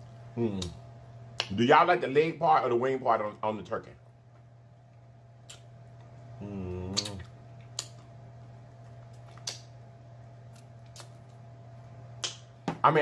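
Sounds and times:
steady low hum: 0.0s - 13.0s
man humming mmm: 0.4s - 0.8s, 6.4s - 7.3s
wet lip smacks and clicks: 0.6s - 1.6s, 5.4s - 6.1s, 6.9s - 8.1s, 9.0s - 9.8s, 10.5s - 11.4s, 12.2s - 12.5s.

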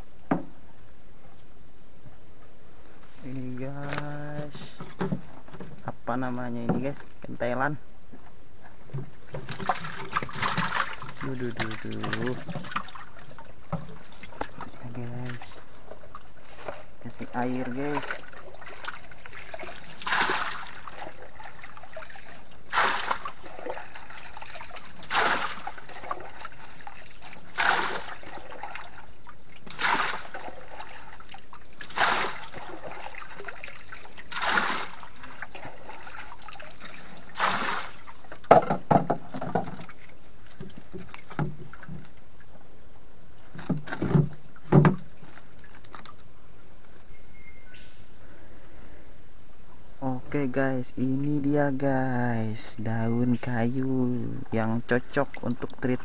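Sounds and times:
water pouring and splashing: 8.9s - 42.1s.

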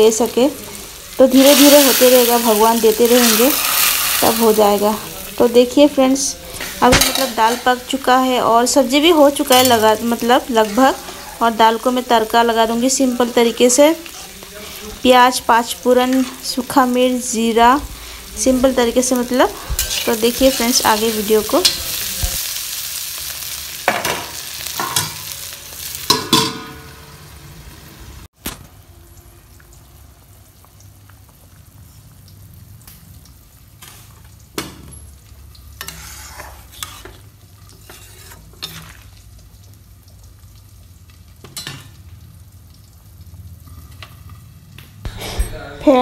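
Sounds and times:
vegetables sizzling in oil: 0.0s - 45.1s
metal spatula scraping pan: 6.4s - 7.9s, 19.5s - 22.0s, 35.8s - 39.1s.

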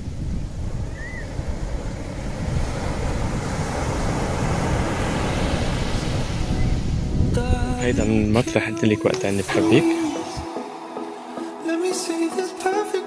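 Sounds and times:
wind buffeting microphone: 0.0s - 8.5s.

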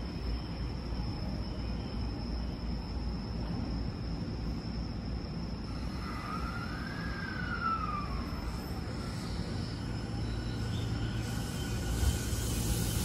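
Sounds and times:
electric train motor whine: 4.9s - 13.0s.

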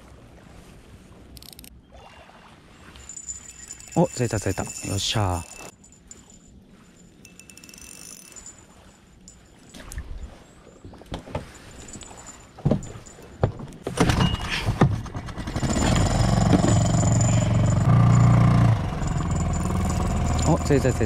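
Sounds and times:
gear clattering in plastic boat: 10.6s - 21.0s
outboard motor running: 14.8s - 21.0s.

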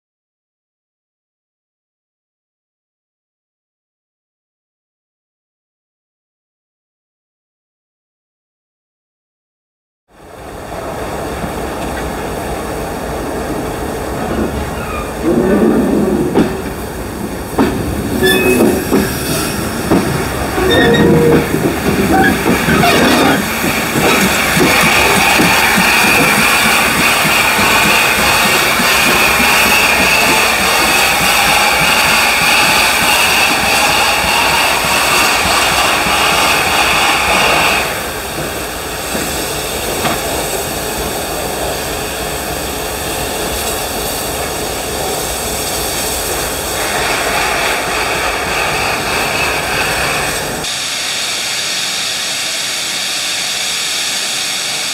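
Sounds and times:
steam locomotive rolling past: 10.1s - 54.9s
wheels squealing: 18.1s - 19.0s, 20.5s - 35.4s
hiss of venting steam: 21.6s - 54.9s.

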